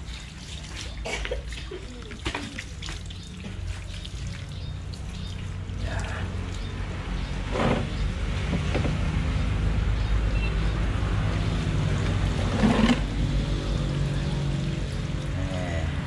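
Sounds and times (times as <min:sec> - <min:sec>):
water trickling from a tap: 0:00.0 - 0:06.9.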